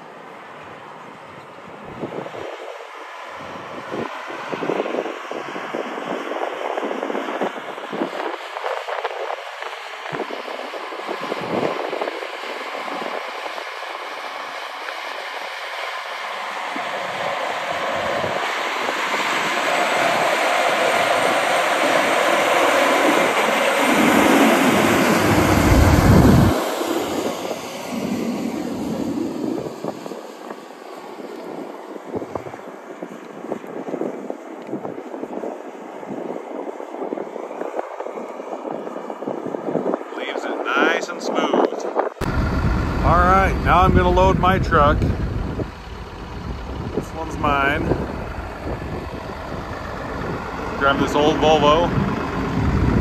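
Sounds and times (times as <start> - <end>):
tractor engine rumbling: 23.8 - 27.2, 42.2 - 53.0.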